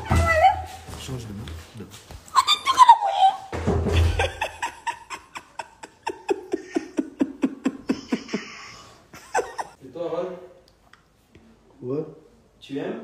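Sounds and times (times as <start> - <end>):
woman laughing: 4.0 - 9.8.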